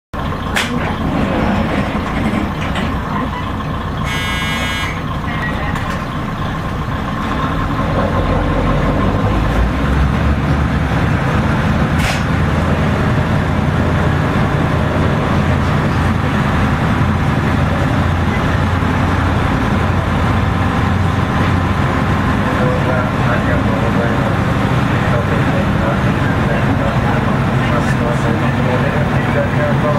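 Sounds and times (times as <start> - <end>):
diesel railcar engine rumbling: 0.1 - 29.9
short high-pitched tone: 4.1 - 5.7.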